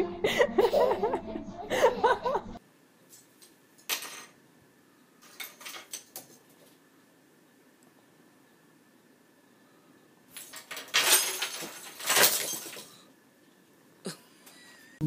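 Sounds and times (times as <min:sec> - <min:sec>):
music: 0:00.0 - 0:02.6
ornaments clinking and rustling: 0:05.2 - 0:06.4, 0:10.3 - 0:13.1.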